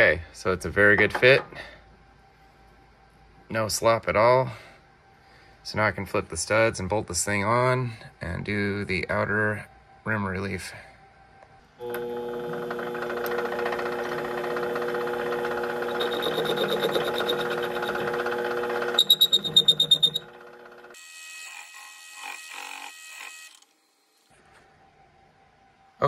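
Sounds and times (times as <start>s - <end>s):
lathe motor and gear whine: 11.8s - 24.3s
loud high pulsing squeal: 15.7s - 20.3s.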